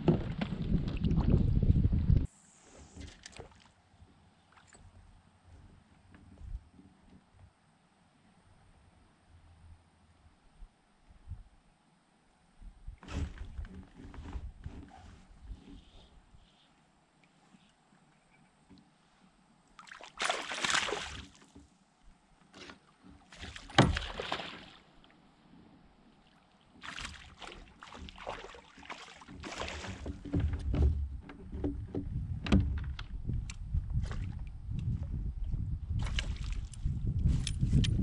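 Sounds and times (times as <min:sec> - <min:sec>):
water splashing around a kayak: 0:19.8 - 0:21.8, 0:22.4 - 0:33.0, 0:36.0 - 0:36.8.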